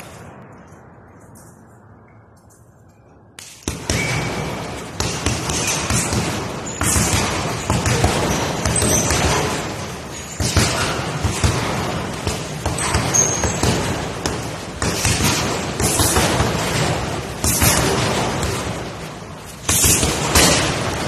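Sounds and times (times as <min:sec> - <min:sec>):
punches thudding on heavy bag: 0:03.7 - 0:19.0, 0:19.6 - 0:21.0.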